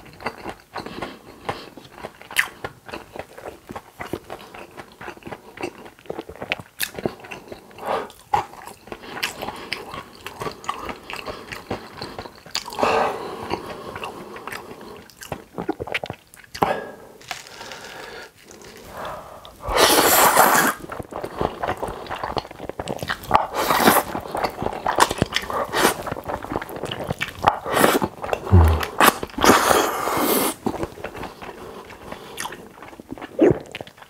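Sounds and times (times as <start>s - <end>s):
wet chewing: 13.4s - 34.0s
slurping noodles: 17.4s - 22.4s, 23.1s - 26.7s, 27.4s - 30.6s
mouth clicks: 27.7s - 29.8s.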